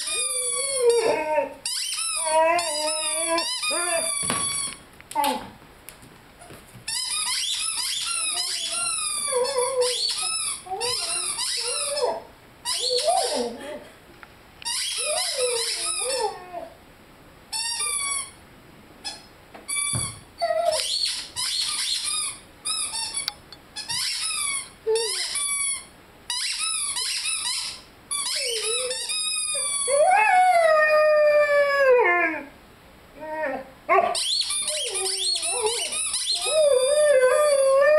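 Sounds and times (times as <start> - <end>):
puppy howling: 0.0 - 1.6, 2.2 - 4.1, 8.3 - 13.8, 15.0 - 16.8, 33.2 - 37.9
rubber toy squeaking: 0.0 - 4.8, 6.9 - 13.5, 14.6 - 16.4, 17.5 - 18.4, 19.0 - 30.1, 34.2 - 37.6.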